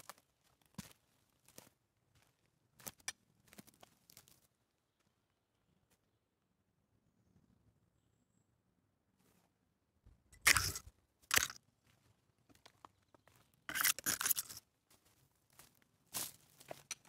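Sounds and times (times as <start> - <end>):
footsteps crunching on forest litter: 0.0 - 4.5, 10.5 - 17.0.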